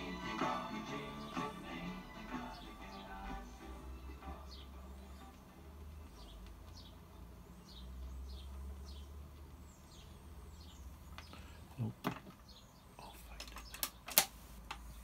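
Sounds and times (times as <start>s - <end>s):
low steady hum: 0.0s - 12.0s
tone arm sharp clicks: 13.4s - 14.8s.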